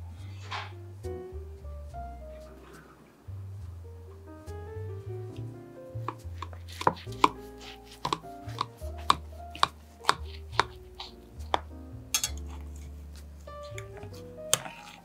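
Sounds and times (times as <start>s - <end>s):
soft background music: 0.0s - 15.0s
knife tapping glass dish: 8.0s - 10.2s.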